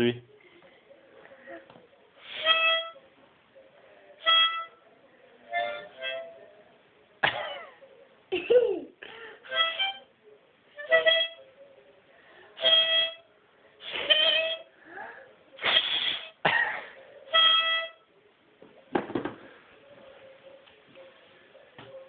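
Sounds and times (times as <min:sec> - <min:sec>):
harmonica chords: 0:02.2 - 0:03.1, 0:04.1 - 0:06.5, 0:09.4 - 0:10.1, 0:10.7 - 0:11.6, 0:12.6 - 0:14.8, 0:17.2 - 0:18.1.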